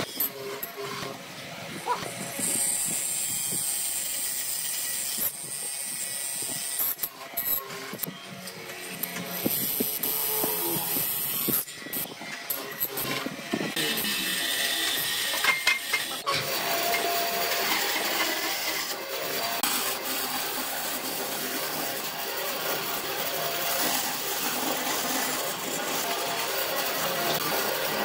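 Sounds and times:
band saw cutting wood: 0.0s - 28.0s.

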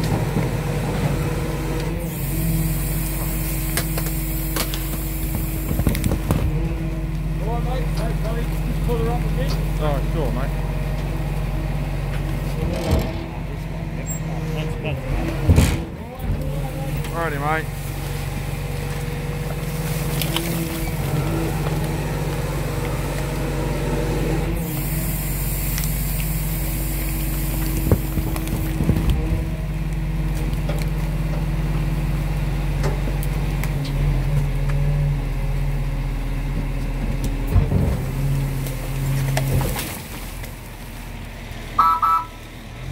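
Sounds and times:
diesel engine running: 0.0s - 42.9s
loud hiss: 24.7s - 28.4s
compactor crushing bags: 25.2s - 31.5s
short beep: 41.8s - 42.4s.

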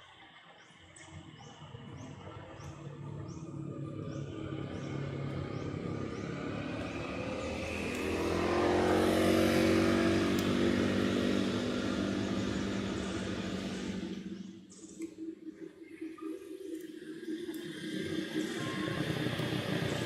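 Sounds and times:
passing vehicle engine: 1.9s - 14.6s.

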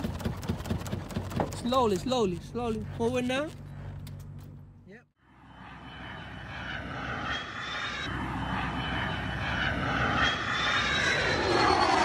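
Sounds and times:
fighter jet engine roaring: 5.2s - 12.0s
thin high whine: 5.3s - 12.0s.

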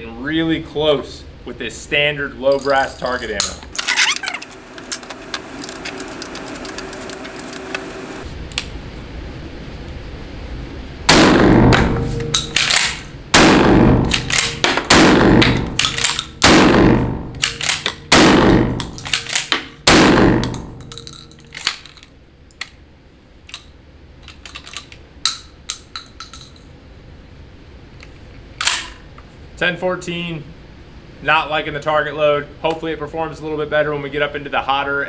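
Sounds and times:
shotgun shots echoing indoors: 11.1s - 21.1s
clicks and clacks of gun handling: 12.3s - 13.0s, 14.1s - 14.8s, 15.4s - 16.4s, 17.4s - 18.0s, 18.8s - 19.7s, 20.4s - 22.8s, 23.4s - 26.7s
metallic clicks of gun action: 12.4s - 13.1s, 14.1s - 14.8s, 15.4s - 16.4s, 17.4s - 18.0s, 18.8s - 19.7s, 23.4s - 26.6s.

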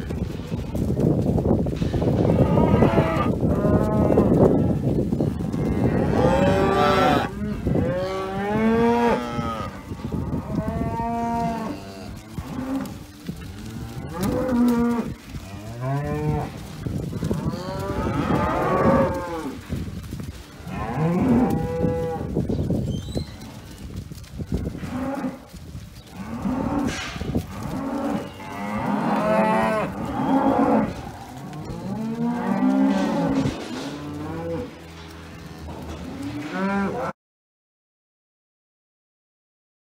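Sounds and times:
cows mooing: 2.3s - 4.8s, 5.4s - 19.8s, 20.6s - 22.4s, 24.8s - 25.5s, 26.1s - 37.1s.

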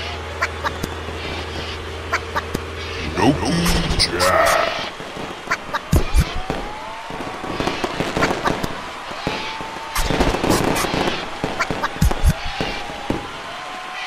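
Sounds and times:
crackling bursts: 0.0s - 14.0s
whistling rockets: 4.8s - 14.0s
firework bangs: 4.9s - 14.0s.

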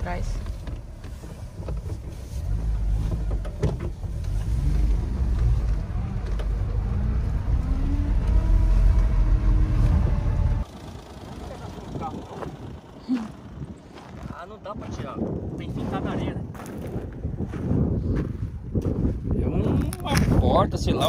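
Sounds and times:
small truck engine: 0.0s - 14.2s
tyres rumbling on gravel: 0.0s - 21.0s.

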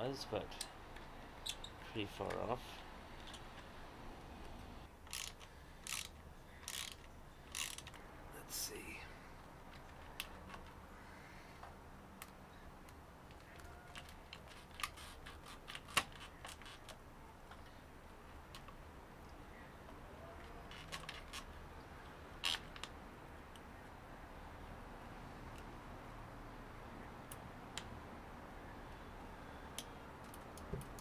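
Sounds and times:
hand ratchet clicking: 5.1s - 8.0s.

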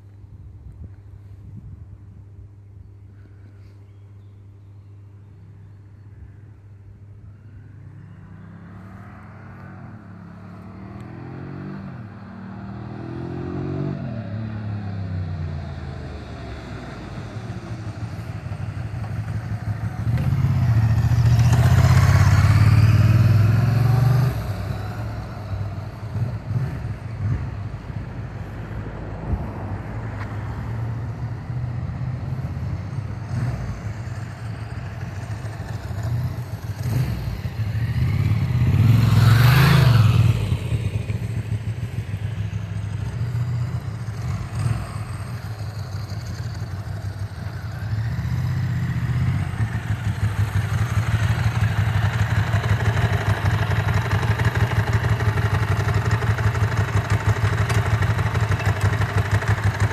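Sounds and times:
motorcycle engine passing by: 7.7s - 29.8s, 30.4s - 59.9s.

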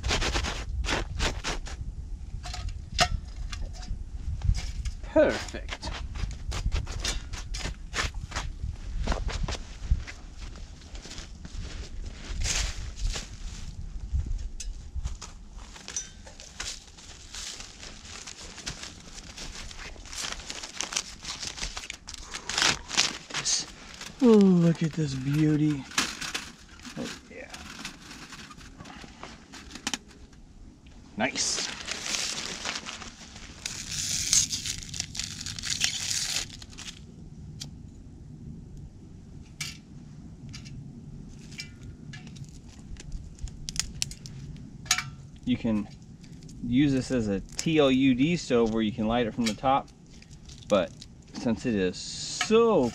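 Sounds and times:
footsteps crunching in snow: 7.6s - 25.3s, 31.4s - 35.8s
small clicks and crackles: 14.6s - 30.4s, 31.4s - 37.8s, 40.4s - 51.6s
rustling dry tinder: 15.1s - 30.2s, 31.2s - 37.0s.

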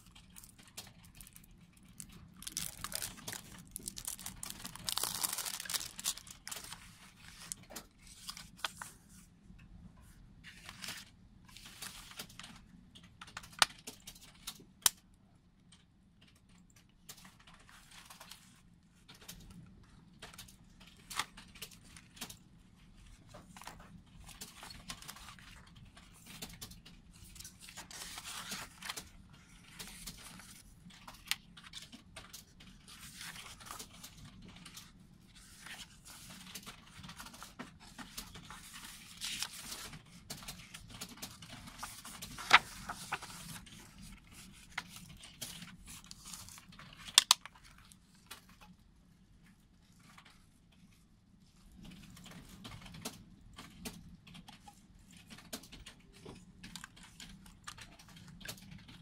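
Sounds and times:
paper rustling and sliding: 2.5s - 9.3s, 10.4s - 12.4s, 27.2s - 31.8s, 32.9s - 47.2s.

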